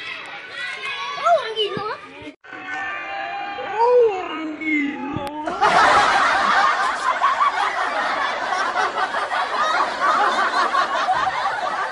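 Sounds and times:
crowd laughing: 5.4s - 11.9s.

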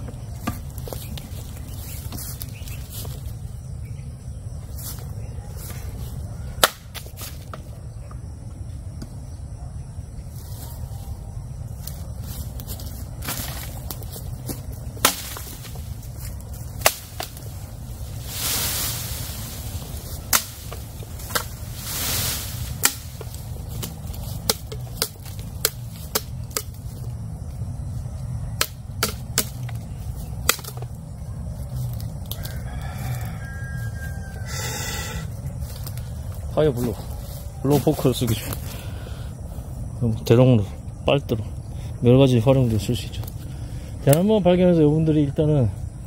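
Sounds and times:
bamboo leaves rustling: 0.0s - 3.7s, 4.6s - 7.8s, 10.3s - 39.7s
machete chopping bamboo: 6.6s - 7.6s, 15.0s - 15.8s, 16.8s - 17.5s, 20.3s - 21.6s, 22.6s - 26.8s, 28.6s - 29.8s, 30.4s - 30.9s.

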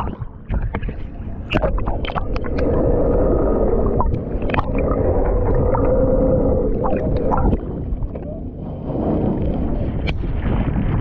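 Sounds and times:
water splashing: 0.0s - 8.5s
muffled underwater hum: 0.0s - 11.0s.

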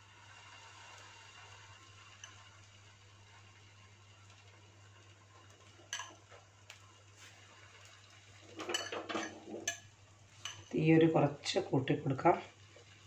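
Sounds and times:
spoon clinking: 5.9s - 6.2s, 8.6s - 10.7s.

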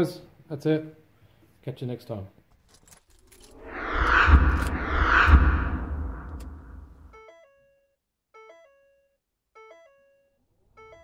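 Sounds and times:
whooshing swells: 3.4s - 7.1s
deep rumble: 3.5s - 7.1s.

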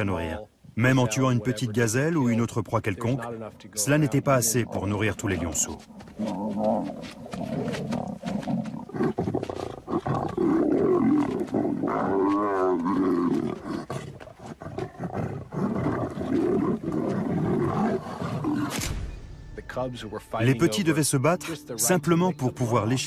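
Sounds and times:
lions snarling and growling: 4.3s - 18.9s.

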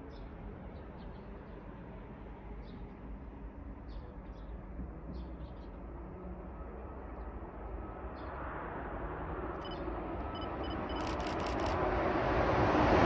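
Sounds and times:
train rumbling on rails: 0.0s - 13.0s
faint high repeated tones: 9.6s - 11.8s
clatter of ticks: 10.6s - 11.8s.

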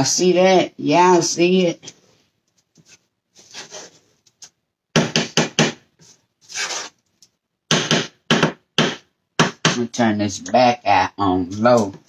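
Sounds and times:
wooden spoon scraping a pot: 2.9s - 4.2s, 6.0s - 7.0s.

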